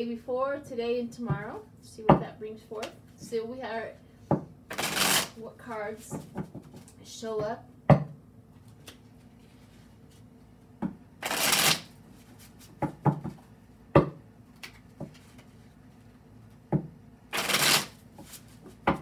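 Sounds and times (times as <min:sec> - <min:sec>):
cards riffling: 0:04.7 - 0:05.3, 0:11.2 - 0:11.9, 0:17.3 - 0:18.4.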